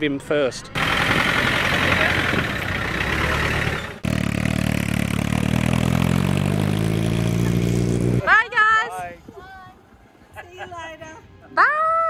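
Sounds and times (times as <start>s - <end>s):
roadster engine driving off: 0.7s - 8.4s
car engine running: 0.8s - 8.2s.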